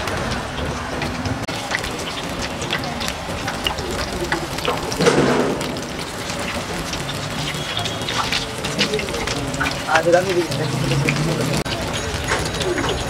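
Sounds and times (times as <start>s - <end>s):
deep-frying oil sizzling: 0.0s - 13.0s.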